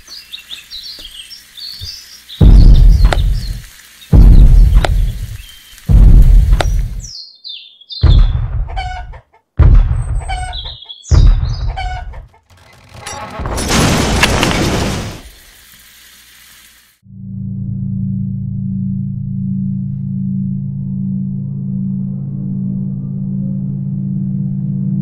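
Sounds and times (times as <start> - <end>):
heavy low thuds: 2.4 - 3.6, 4.2 - 5.3, 5.9 - 7.1, 8.0 - 8.8, 9.6 - 10.4, 11.1 - 12.1
chicken clucking and chirping: 8.7 - 9.4, 10.2 - 12.5.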